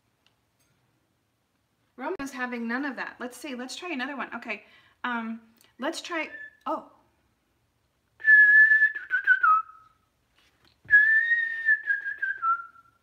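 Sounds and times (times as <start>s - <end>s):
person whistling a tune: 8.2s - 10.0s, 10.9s - 13.0s.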